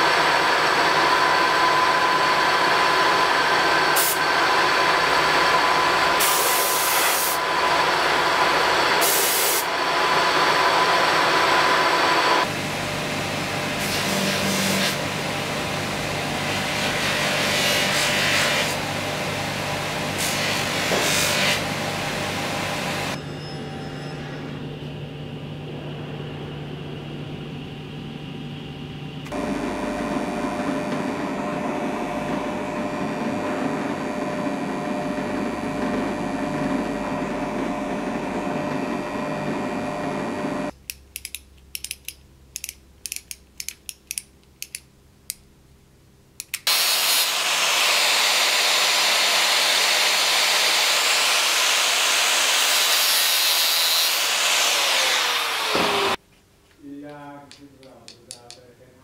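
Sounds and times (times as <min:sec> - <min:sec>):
low machine hum: 0:21.7 - 0:40.8
sharp irregular clicks: 0:40.8 - 0:45.5, 0:46.4 - 0:46.7, 0:57.0 - 0:58.7
angle grinder cutting metal: 0:46.7 - 0:56.2.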